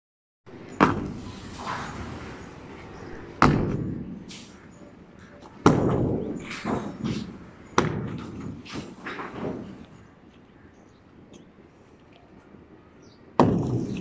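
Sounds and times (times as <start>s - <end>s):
broken concrete clattering: 5.6s - 9.8s.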